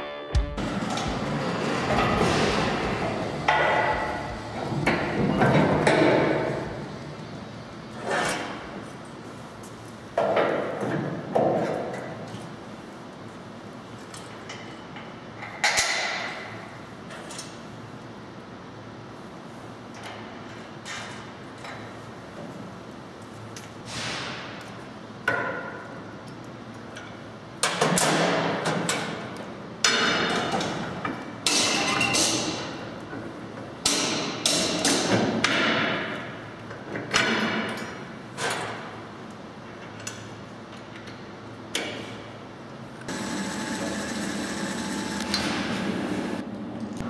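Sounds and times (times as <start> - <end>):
metallic knocks on steel: 0.9 - 4.4
impact wrench running: 43.1 - 46.4.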